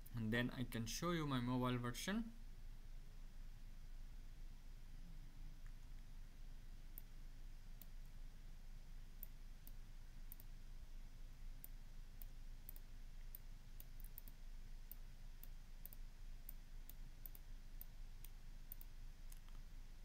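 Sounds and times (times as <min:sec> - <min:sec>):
low steady hum: 0:00.0 - 0:20.0
computer mouse clicks: 0:09.2 - 0:10.5, 0:11.6 - 0:19.6.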